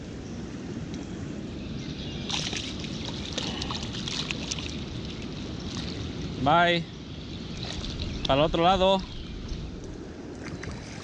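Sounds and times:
crackling splashes: 2.2 - 6.4, 9.8 - 11.0
water sloshing and splashing: 2.2 - 6.4, 7.4 - 8.4, 9.0 - 11.0.

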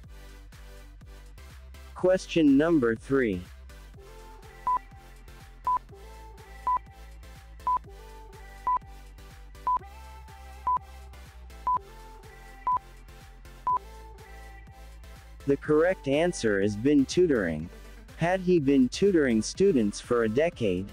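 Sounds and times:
quiet background music: 1.9 - 20.9
countdown timer beeping: 4.6 - 4.9, 7.6 - 7.9.

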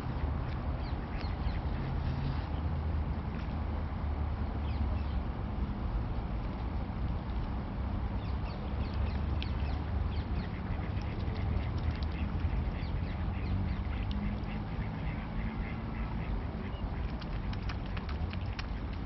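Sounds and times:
steady low rumble: 0.0 - 19.0
ducks quacking: 10.4 - 18.0.

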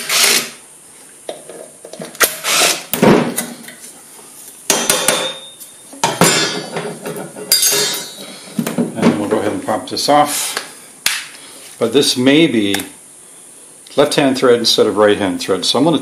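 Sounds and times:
metal clatter on workbench: 4.8 - 8.8.

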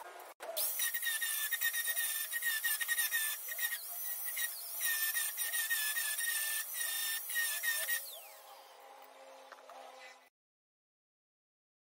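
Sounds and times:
angle grinder grinding steel: 0.6 - 8.4.

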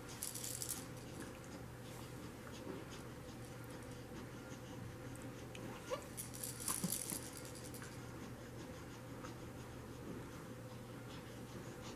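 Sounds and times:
low room hum: 0.0 - 11.9
plastic toy rings rattling: 0.1 - 1.1, 6.1 - 8.0.

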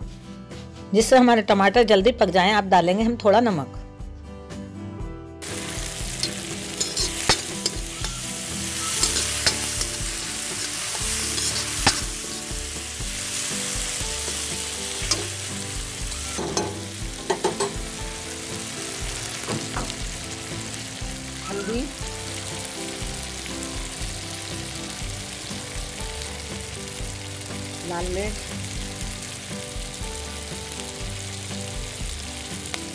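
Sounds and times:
vegetables sizzling in hot oil: 5.4 - 32.9
ladle clinking against pan: 6.2 - 8.2, 16.4 - 17.8.

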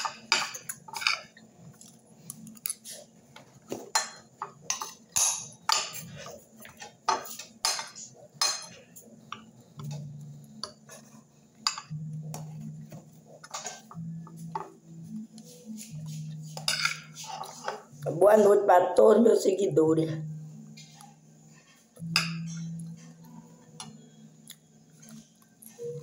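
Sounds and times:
low steady hum: 0.0 - 26.0
cutlery clinking on a plate: 3.7 - 8.8, 13.4 - 14.0, 16.6 - 17.9.

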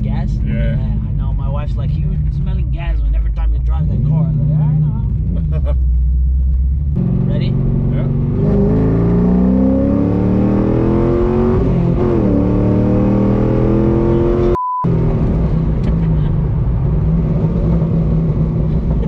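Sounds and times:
car engine accelerating: 0.0 - 19.0
steady beep tone: 14.2 - 14.9.

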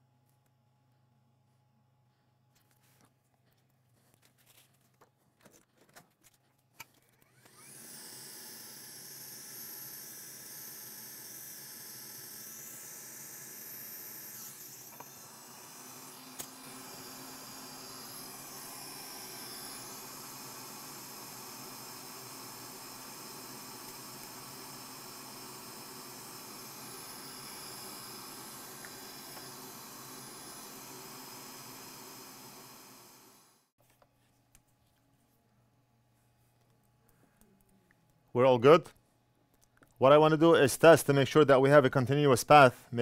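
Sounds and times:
small electric motor whirring: 6.9 - 33.7.

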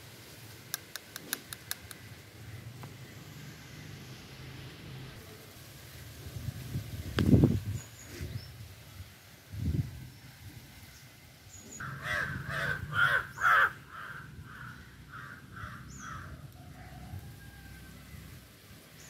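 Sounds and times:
bird calling: 11.5 - 16.5.

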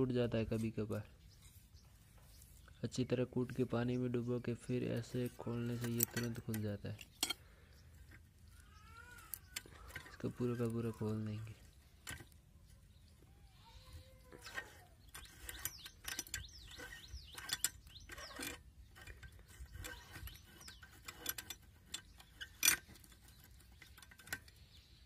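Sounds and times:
metal sprinkler head clinking: 5.0 - 7.4.

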